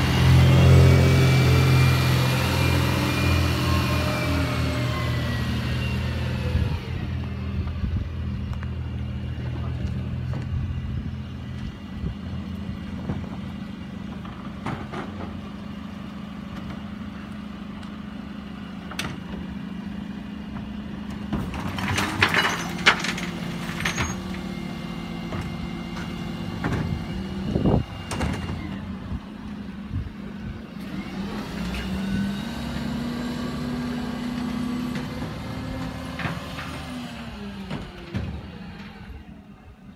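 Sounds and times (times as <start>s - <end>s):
refuse truck engine running: 0.0s - 39.9s.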